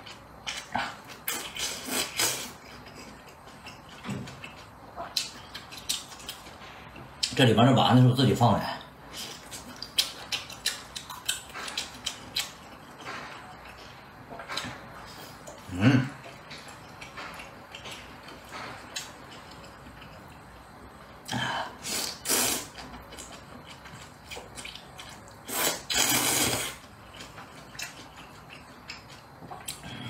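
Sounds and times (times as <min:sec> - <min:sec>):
person slurping noodles: 0:21.3 - 0:22.7, 0:25.5 - 0:26.8.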